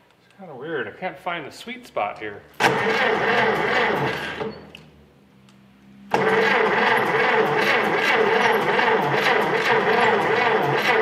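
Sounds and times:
starter cranking engine: 0:02.6 - 0:04.6, 0:06.1 - 0:11.0.

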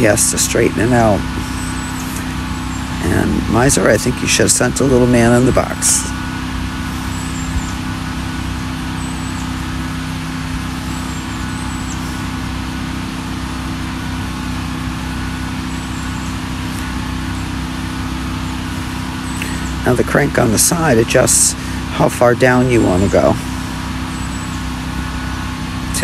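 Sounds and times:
sawmill engine running: 0:00.0 - 0:26.0.

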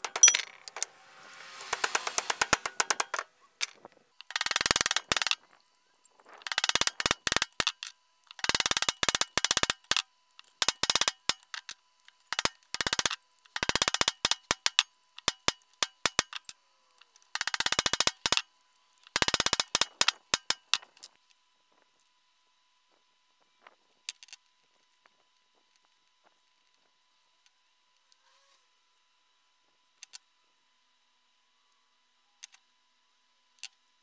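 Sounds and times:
sheet steel scraping on metal: 0:00.0 - 0:03.2.

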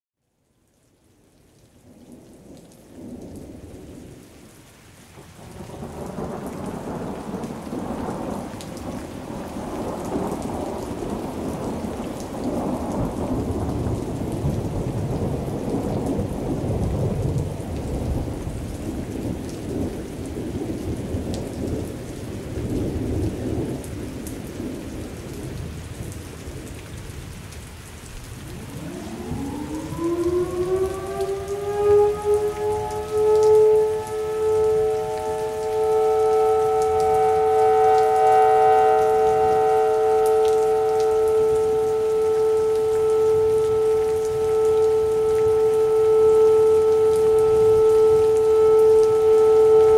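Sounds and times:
steady rain: 0:00.2 - 0:49.9
rolling thunder: 0:05.2 - 0:26.7, 0:28.3 - 0:49.9
warning siren winding up: 0:28.8 - 0:49.9.

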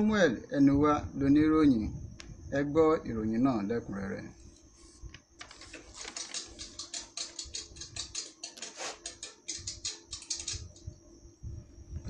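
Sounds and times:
rapid typewriter clacking: 0:05.4 - 0:10.6.

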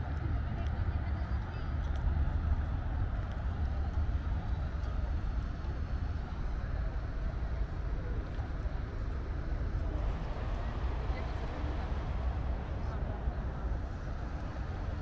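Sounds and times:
low rumble: 0:09.8 - 0:15.0.

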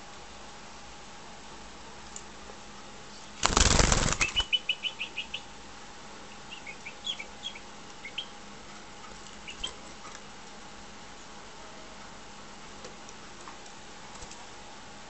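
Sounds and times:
bird wings fluttering: 0:03.4 - 0:04.6
bird chirping: 0:03.7 - 0:05.5, 0:06.3 - 0:08.4, 0:09.4 - 0:09.9.

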